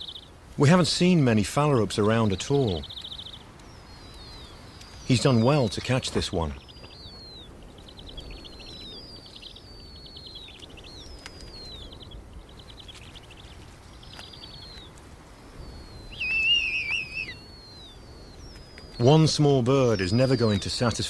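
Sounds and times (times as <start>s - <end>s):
owl chicks begging calls: 0.0s - 21.0s.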